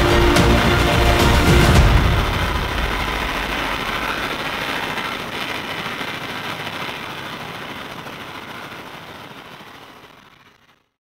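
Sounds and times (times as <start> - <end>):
powerboat engines running: 0.0 - 5.2.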